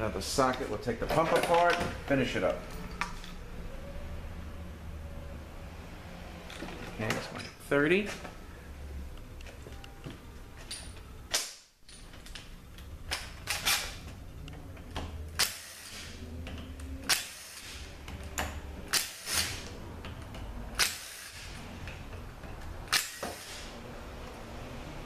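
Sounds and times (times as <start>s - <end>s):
socket tool clicking on bolts: 10.7s - 23.6s.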